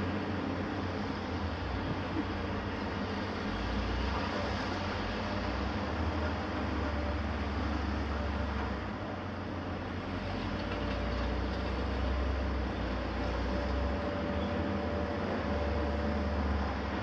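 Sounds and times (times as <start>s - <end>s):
heavy machinery engine drone: 0.0s - 17.0s.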